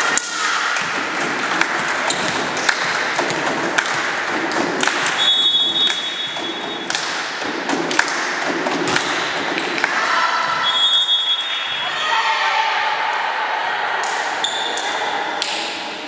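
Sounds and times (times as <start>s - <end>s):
balls and feet thudding on floor: 0.8s - 9.8s
referee's whistle blast: 5.2s - 6.8s, 10.6s - 12.0s.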